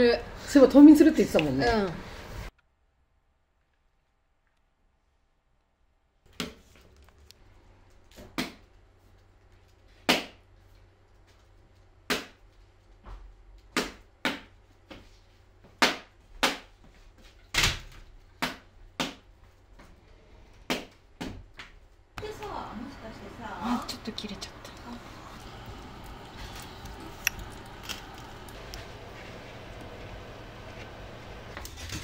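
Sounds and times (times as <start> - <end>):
low steady hum: 22.1 - 32.0.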